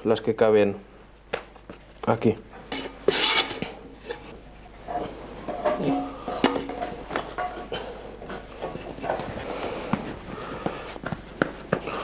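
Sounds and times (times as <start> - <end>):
scraper scraping metal bowl: 2.8 - 4.3.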